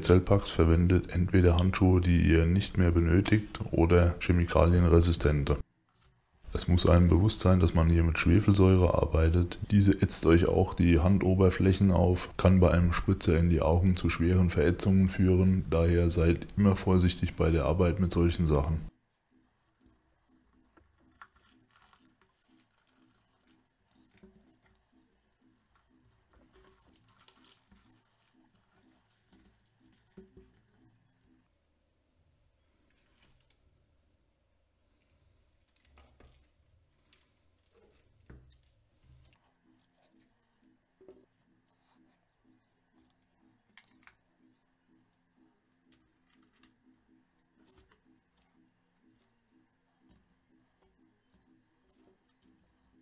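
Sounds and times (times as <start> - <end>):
battery plates crackling: 20.6 - 31.2.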